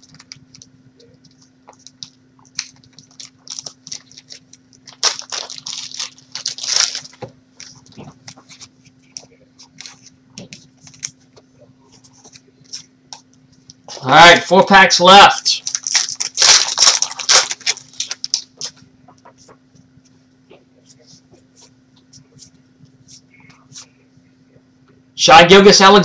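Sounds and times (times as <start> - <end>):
foil wrapper crinkling: 0.0 - 11.4, 15.4 - 19.6
cards shuffling: 0.1 - 13.2, 15.5 - 19.6.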